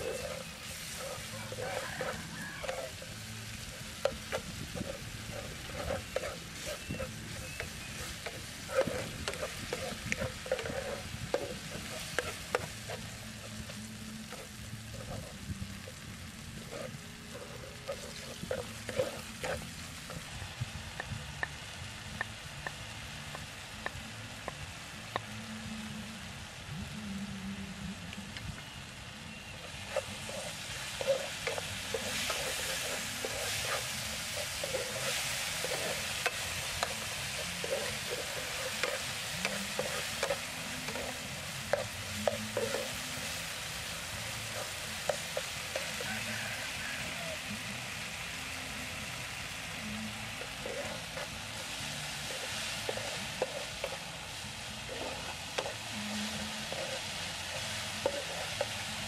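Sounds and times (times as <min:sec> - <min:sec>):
spatula scraping and tapping pan: 0:00.0 - 0:16.0, 0:16.6 - 0:20.3, 0:29.5 - 0:47.1, 0:49.8 - 0:59.0
meat sizzling in a frying pan: 0:00.0 - 0:27.0, 0:28.9 - 0:59.0.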